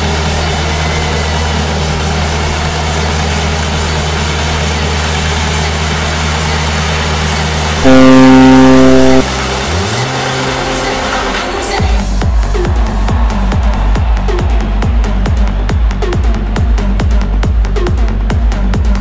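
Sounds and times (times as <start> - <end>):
rising low tone: 7.8 - 9.2
electronic buzzer tone: 7.8 - 9.3
low hum: 7.8 - 9.3.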